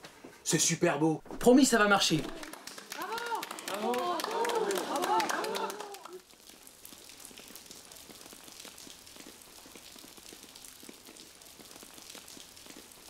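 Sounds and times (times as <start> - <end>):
patter of raindrops: 1.8 - 13.0
rain hiss: 4.4 - 13.0.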